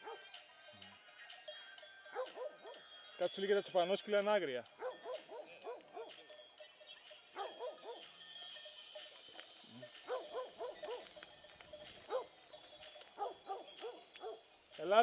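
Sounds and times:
dogs barking: 0.0 - 0.4, 2.1 - 2.9, 4.7 - 6.3, 7.3 - 8.1, 10.0 - 11.2, 12.0 - 12.4, 13.1 - 14.5.

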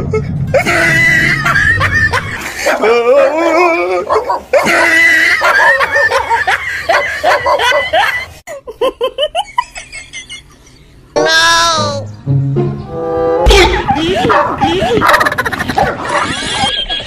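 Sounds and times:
bursts of laughter: 0.0 - 10.8, 13.5 - 17.0
dog barking rapidly: 4.1 - 4.8, 5.4 - 8.0, 13.5 - 16.4.

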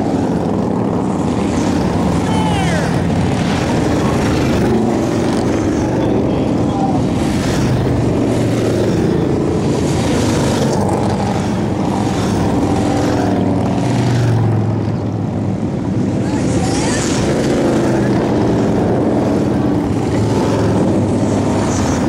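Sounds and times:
motorcycles riding past: 0.0 - 22.0.

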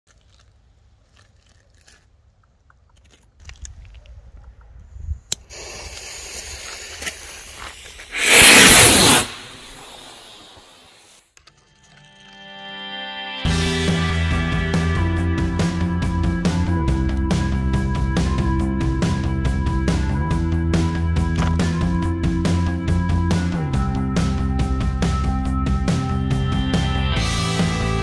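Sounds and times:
firework fuse sputtering: 5.5 - 11.2
rocket motor rushing hiss: 5.5 - 11.2.

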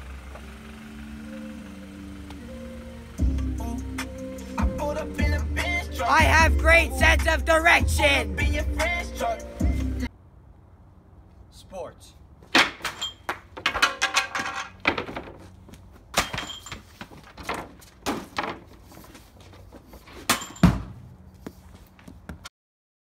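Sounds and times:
hockey stick and puck knocking: 12.5 - 15.5.

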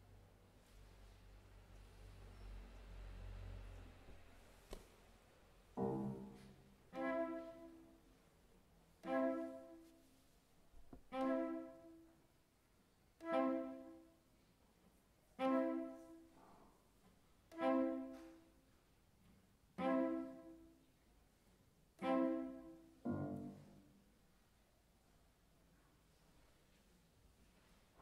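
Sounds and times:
cello and piano chords: 5.8 - 8.2, 9.0 - 9.9, 11.0 - 12.1, 13.2 - 14.1, 15.4 - 16.4, 17.5 - 18.5, 19.8 - 20.8, 22.0 - 24.1.

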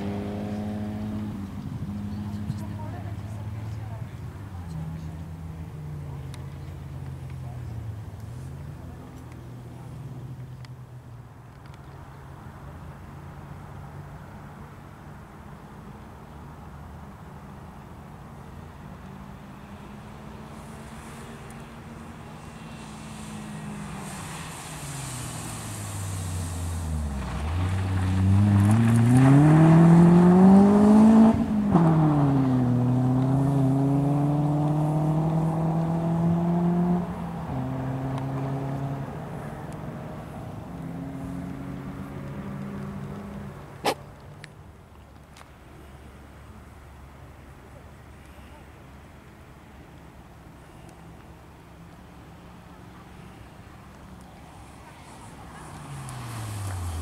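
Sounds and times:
rally car engine revving: 0.0 - 3.2, 21.7 - 39.3.

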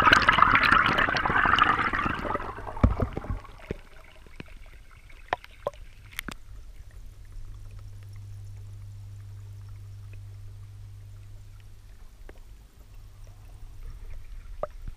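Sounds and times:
low underwater hum: 0.0 - 14.9
sharp underwater clicks: 2.7 - 10.3.

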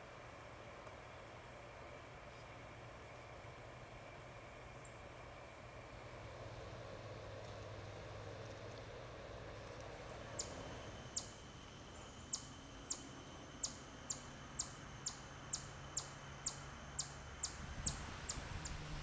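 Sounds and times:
bird chirping: 10.4 - 18.8.

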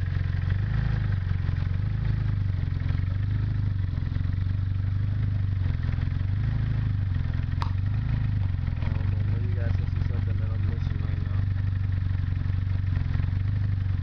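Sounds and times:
car engine idling: 0.0 - 14.0
sharp click: 7.6 - 7.8.

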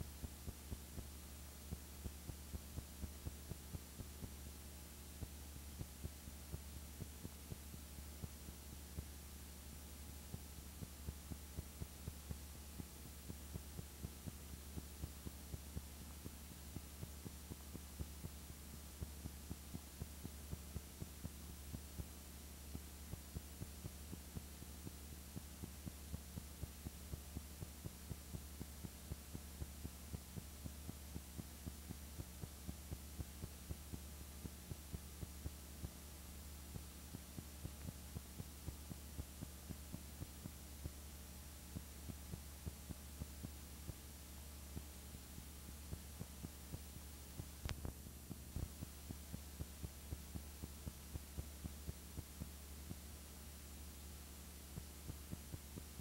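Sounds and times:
low electrical hum: 0.0 - 56.0
faint regular clicks: 44.7 - 53.0.

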